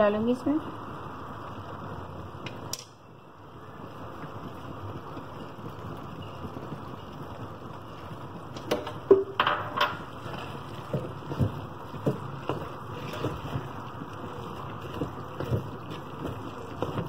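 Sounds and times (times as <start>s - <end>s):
spoon knocking and scraping pot: 8.6s - 13.7s.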